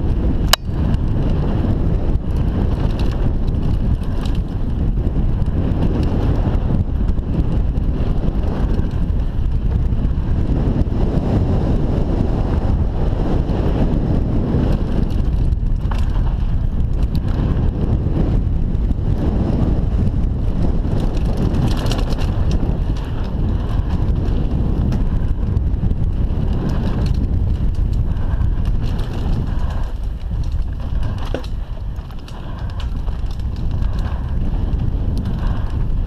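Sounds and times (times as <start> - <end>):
bike rattling: 0.0 - 36.0
wind buffeting microphone: 0.0 - 36.0
tyres rumbling over dirt: 13.2 - 36.0.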